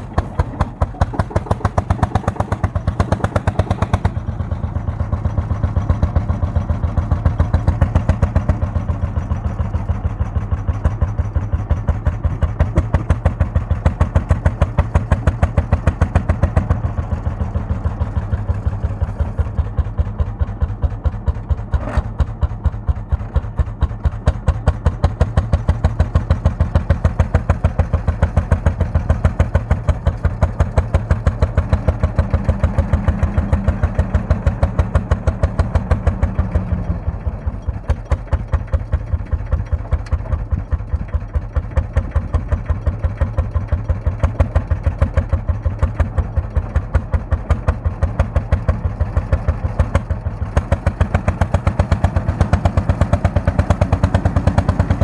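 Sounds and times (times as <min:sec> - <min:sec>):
tractor engine running: 0:00.0 - 0:55.0.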